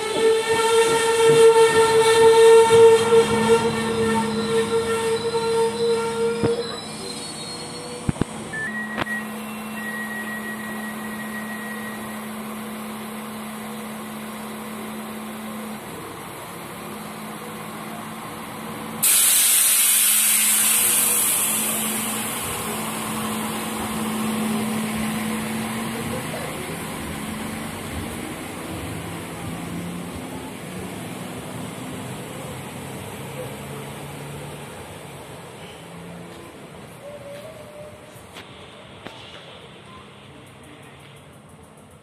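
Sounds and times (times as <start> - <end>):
diesel railcar engine idling: 0.0 - 42.0
compressed air hiss: 19.0 - 22.8.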